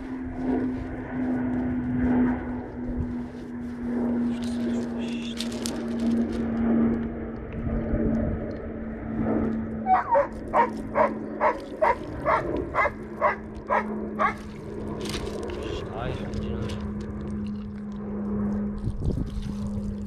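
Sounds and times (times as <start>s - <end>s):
low hum: 0.0s - 20.0s
dog barking: 9.9s - 14.4s.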